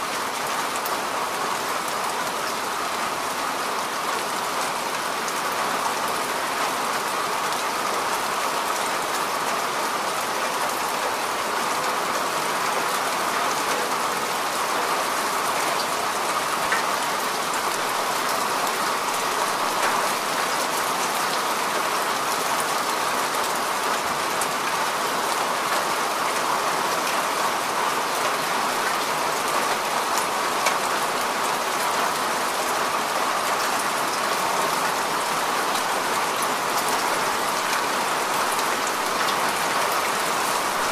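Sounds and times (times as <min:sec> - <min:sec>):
sharp ticks of raindrops: 0:28.0 - 0:32.7, 0:33.4 - 0:40.9.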